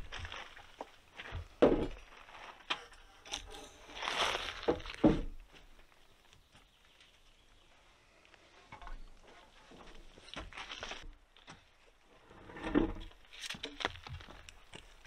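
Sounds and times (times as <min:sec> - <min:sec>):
wooden log scraping over logs: 0:00.0 - 0:05.8, 0:08.7 - 0:15.0
log knocking into place: 0:04.7 - 0:05.4.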